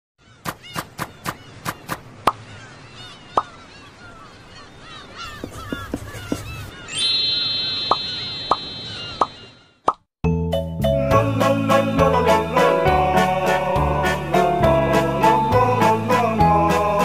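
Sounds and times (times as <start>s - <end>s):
birds chirping: 0.2s - 9.9s.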